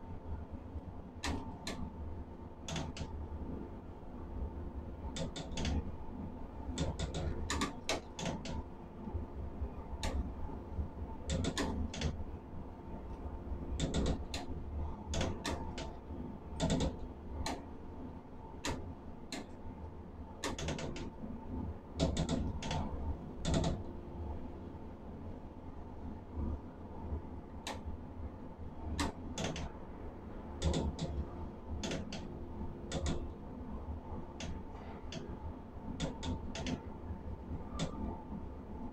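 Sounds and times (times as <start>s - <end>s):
faint steady whine: 0.0s - 38.9s
sharp metallic clicks and knocks: 1.2s - 1.9s, 2.7s - 3.1s, 5.1s - 5.8s, 6.8s - 8.6s, 11.3s - 12.2s, 13.8s - 14.5s, 15.1s - 16.0s, 16.6s - 17.7s, 20.4s - 21.1s, 22.0s - 23.9s, 29.0s - 29.7s, 30.6s - 31.2s, 31.8s - 32.3s, 32.9s - 33.3s, 36.0s - 36.8s.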